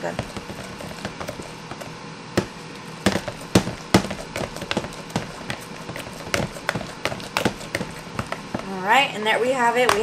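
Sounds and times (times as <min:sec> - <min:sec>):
potato masher knocking in plastic bowl: 0:00.0 - 0:08.8.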